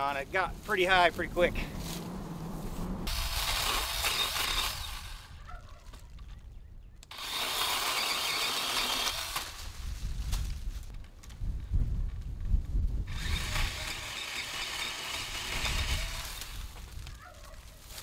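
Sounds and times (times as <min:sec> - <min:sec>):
chainsaw cutting tree limb: 0:03.0 - 0:05.4, 0:07.1 - 0:09.8, 0:13.1 - 0:17.0.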